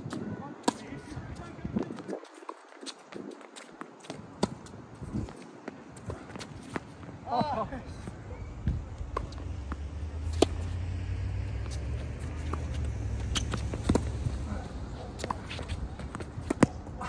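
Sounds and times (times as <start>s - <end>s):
low vehicle rumble: 7.7s - 17.0s
tennis ball struck and bouncing: 8.6s - 17.0s.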